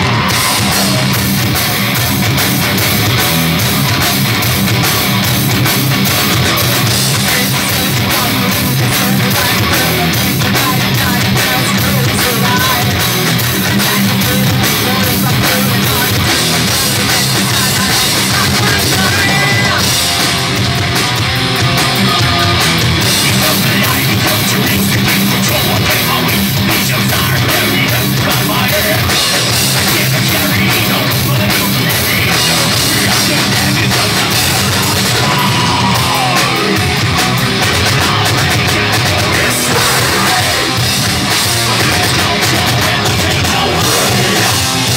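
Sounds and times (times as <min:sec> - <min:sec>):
person singing: 0:00.0 - 0:02.0, 0:06.0 - 0:20.3, 0:21.9 - 0:44.9
heavy metal band playing: 0:00.0 - 0:44.9.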